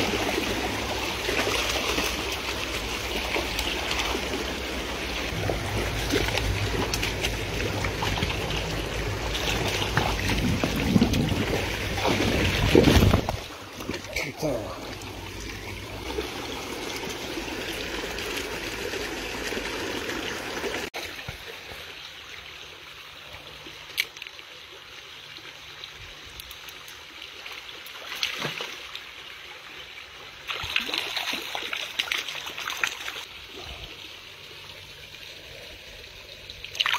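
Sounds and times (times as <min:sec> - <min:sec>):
stream water rushing and splashing: 0:00.0 - 0:36.9
fish splashing at the surface: 0:30.5 - 0:33.6.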